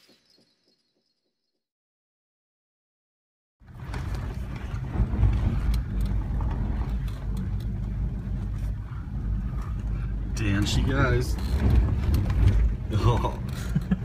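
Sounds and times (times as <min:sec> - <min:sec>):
knocks and rattles: 0:03.6 - 0:08.6, 0:10.6 - 0:14.0
engine and road drone: 0:03.6 - 0:14.0.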